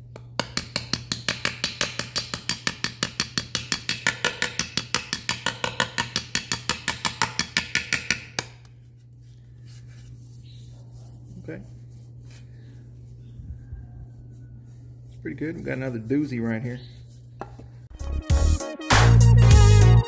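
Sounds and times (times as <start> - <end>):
hammer tapping on metal: 0.1 - 8.7.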